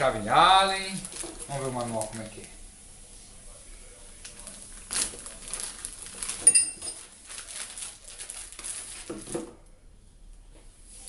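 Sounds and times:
plastic and paper rustling: 0:00.6 - 0:02.6, 0:04.0 - 0:09.6
sharp metallic clink: 0:06.4 - 0:07.0.

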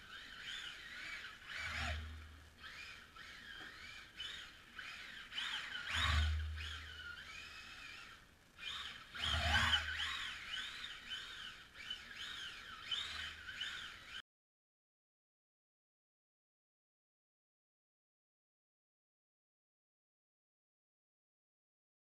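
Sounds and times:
electric motor whining: 0:00.0 - 0:14.2.

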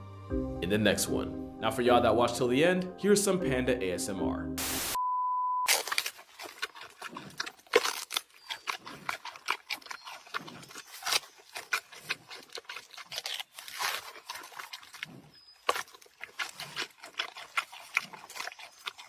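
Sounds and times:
panda crunching bamboo: 0:05.7 - 0:19.0.

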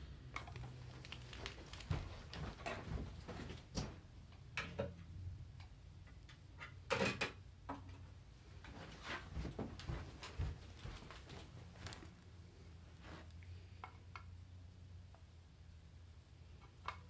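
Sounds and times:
packaging rustling: 0:00.9 - 0:02.4.

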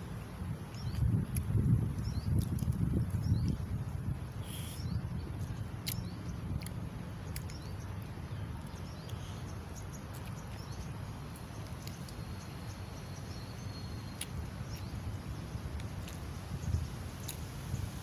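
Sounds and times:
faint bird chirps: 0:04.3 - 0:17.4.

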